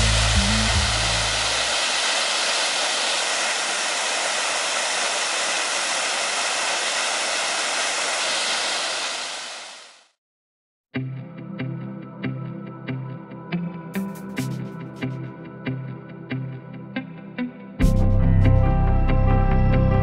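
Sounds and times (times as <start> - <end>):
waterfall rushing: 0.0 - 10.1.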